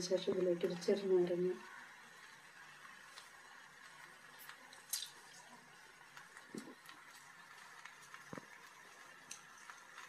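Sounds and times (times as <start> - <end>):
faint hiss of pan cooking: 0.0 - 10.0.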